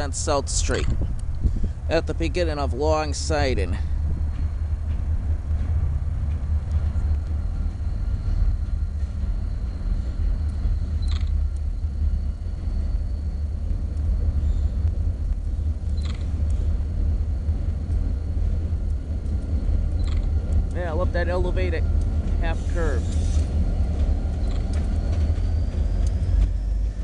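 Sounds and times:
diesel locomotive rumbling: 0:00.0 - 0:27.0
high squeaks: 0:22.4 - 0:27.0.

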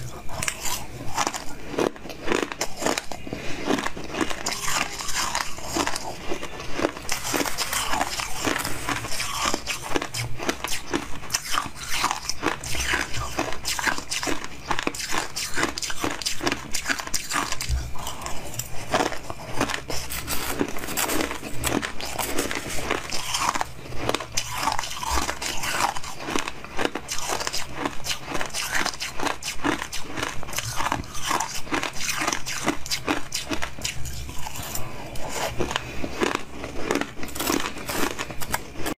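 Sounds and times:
crunching frozen ice: 0:00.0 - 0:39.0
metal spoon scooping ice: 0:37.2 - 0:38.6.

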